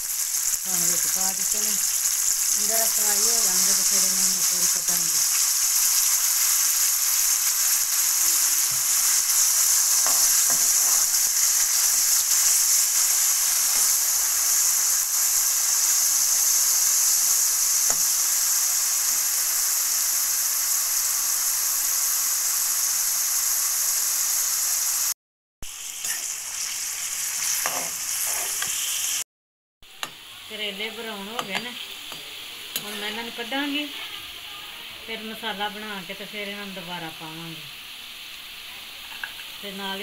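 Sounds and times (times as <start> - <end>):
vegetables sizzling in a wok: 0.0 - 40.0
spoon scraping a wok: 3.1 - 14.4, 26.0 - 26.4, 27.3 - 29.0, 31.2 - 34.4, 39.0 - 39.5.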